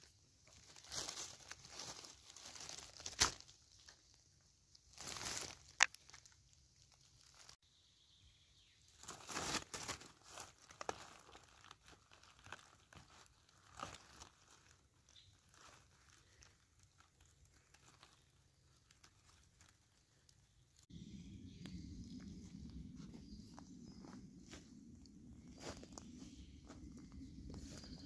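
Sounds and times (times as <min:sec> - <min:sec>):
dry leaves and twigs crackling: 0:00.0 - 0:07.6, 0:08.6 - 0:28.0.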